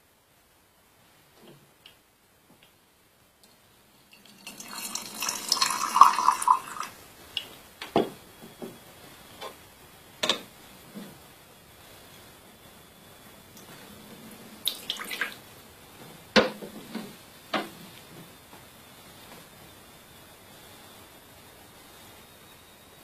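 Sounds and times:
water pouring into teaware: 0:04.1 - 0:07.0, 0:14.7 - 0:15.4.

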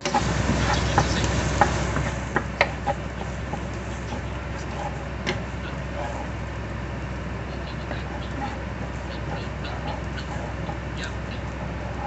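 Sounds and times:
spatula scraping a pan: 0:00.1 - 0:06.4.

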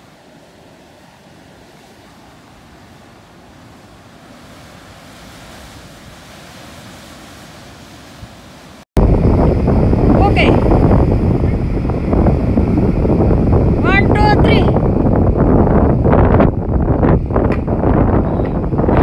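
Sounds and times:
wind on microphone: 0:04.4 - 0:19.0.

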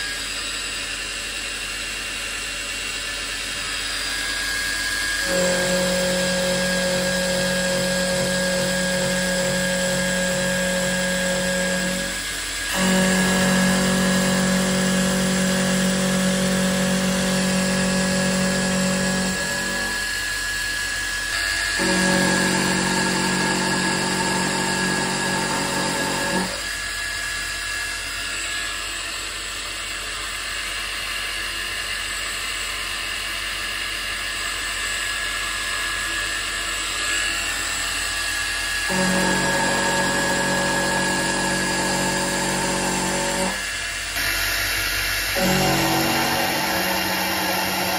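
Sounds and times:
mill motor whining: 0:03.4 - 0:26.8, 0:36.8 - 0:47.9
end mill cutting metal: 0:03.4 - 0:26.9, 0:37.0 - 0:47.9.

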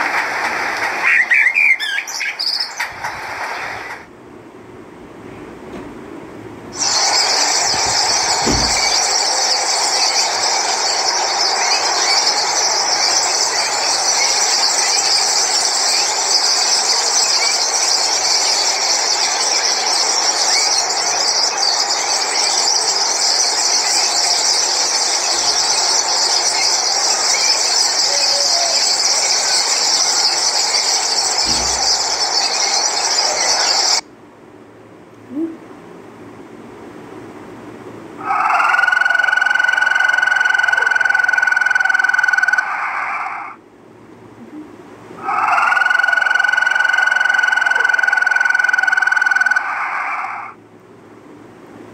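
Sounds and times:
starlings chattering: 0:06.8 - 0:34.0.

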